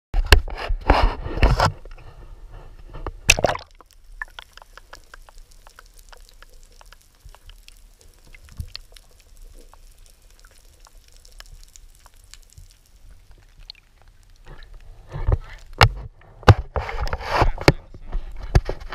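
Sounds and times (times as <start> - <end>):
faint clicks and crackles: 0.2 - 18.9
camera splashing into water: 3.3 - 3.8.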